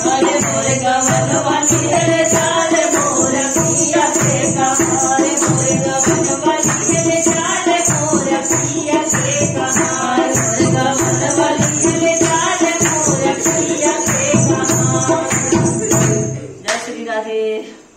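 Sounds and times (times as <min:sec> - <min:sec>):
jingling percussion: 0:00.0 - 0:16.8
woman singing folk song: 0:00.0 - 0:17.8.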